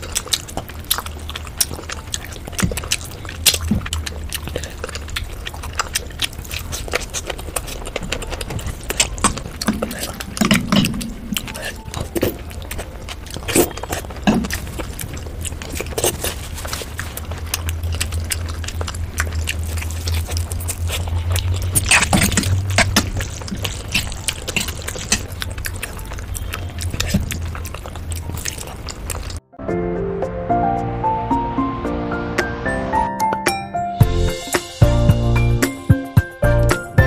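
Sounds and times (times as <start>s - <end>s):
person chewing with wet mouth clicks: 0.0s - 29.4s.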